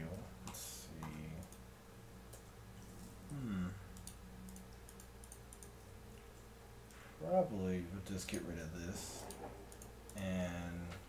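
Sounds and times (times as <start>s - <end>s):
low electrical hum: 0.0s - 11.0s
man humming hmm: 3.2s - 4.0s
keyboard and mouse clicks: 4.0s - 5.7s.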